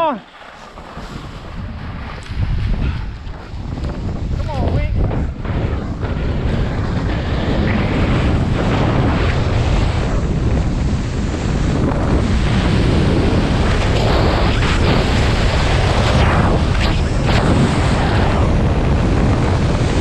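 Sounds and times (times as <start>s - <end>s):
skis hissing over snow: 0.0s - 4.2s
wind buffeting microphone: 0.0s - 20.0s.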